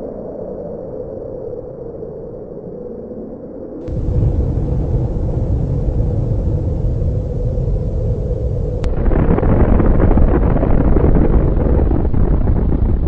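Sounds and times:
deep rumble of huge explosion: 0:03.8 - 0:13.0.

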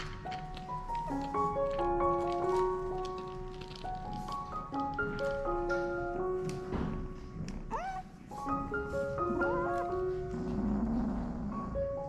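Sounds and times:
kitten meowing: 0:07.7 - 0:08.2.

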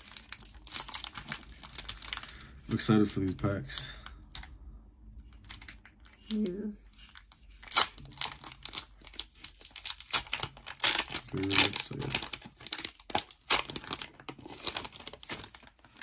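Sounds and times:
foil wrapper crinkling and tearing: 0:00.0 - 0:04.5, 0:05.3 - 0:16.0.

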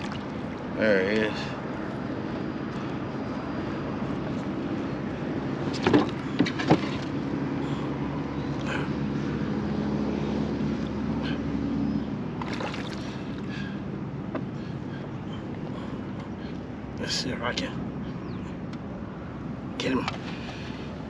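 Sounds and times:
knocks and splashes: 0:00.0 - 0:00.6, 0:05.8 - 0:07.1, 0:12.4 - 0:13.4
steady low hum: 0:00.0 - 0:21.0.

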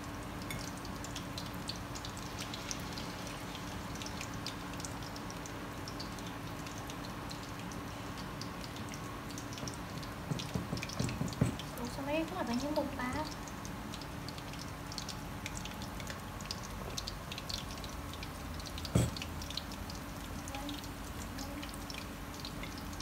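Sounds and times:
hot oil sizzling and crackling: 0:00.0 - 0:23.0.

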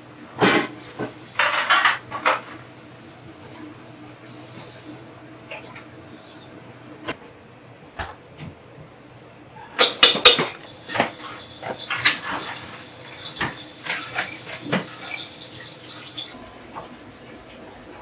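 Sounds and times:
utensils and dishes clinking: 0:00.4 - 0:02.6, 0:09.8 - 0:18.0.

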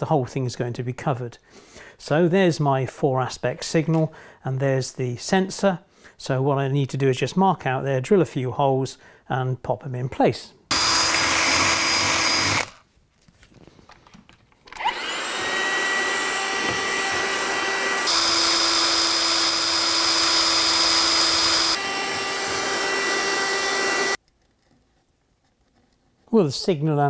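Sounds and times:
cordless drill boring wood: 0:10.7 - 0:12.8, 0:14.7 - 0:24.2
handheld vacuum cleaner whine: 0:10.7 - 0:12.8, 0:14.7 - 0:24.2.

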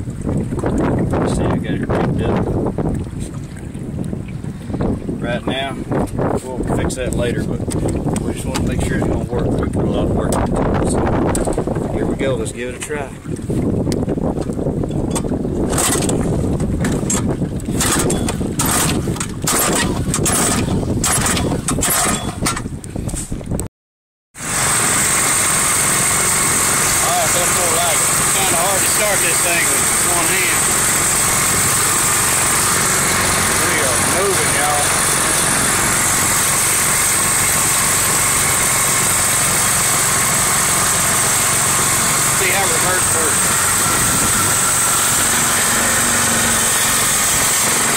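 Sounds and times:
wind rumble on microphone: 0:00.0 - 0:23.7, 0:25.9 - 0:47.9
engine recoil starter pulls: 0:15.1 - 0:16.2, 0:16.8 - 0:22.7
lawn mower engine running: 0:15.2 - 0:22.6, 0:24.4 - 0:47.9.

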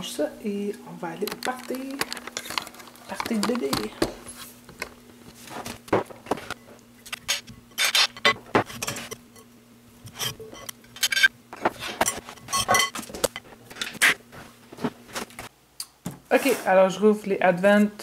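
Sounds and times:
faint steady hum: 0:00.0 - 0:18.0
utensil clinking ceramic bowl: 0:12.1 - 0:13.4.

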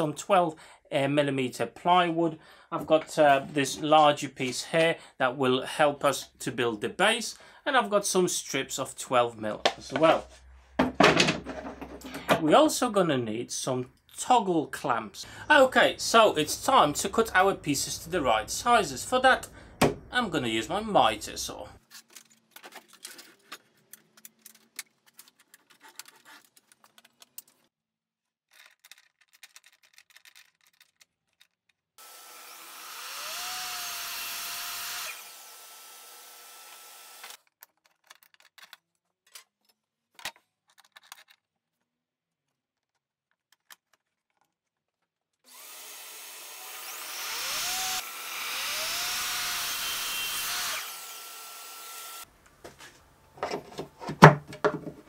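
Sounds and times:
mitre saw cutting wood: 0:32.0 - 0:37.4, 0:45.5 - 0:52.3
wood being handled: 0:52.4 - 0:55.0.

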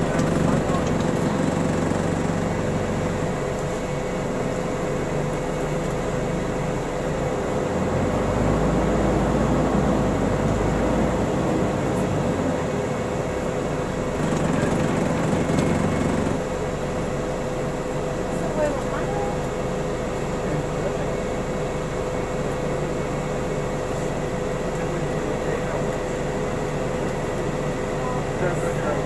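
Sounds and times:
bus engine rumble: 0:00.0 - 0:29.0
road noise: 0:00.0 - 0:29.0
thin steady whine: 0:09.1 - 0:29.0.

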